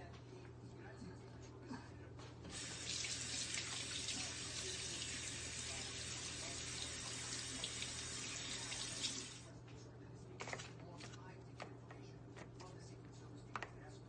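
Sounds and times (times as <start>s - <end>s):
tap water running into sink: 2.5s - 9.4s.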